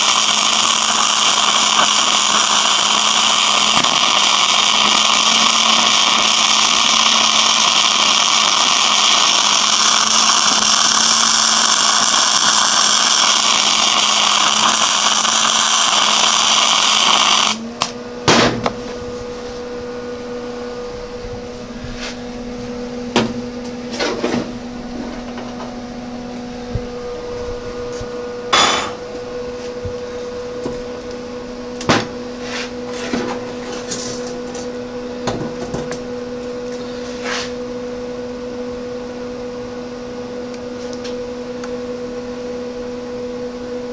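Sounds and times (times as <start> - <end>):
welding arc sizzling: 0.0 - 18.0, 27.9 - 31.2
steady hum: 0.0 - 43.9.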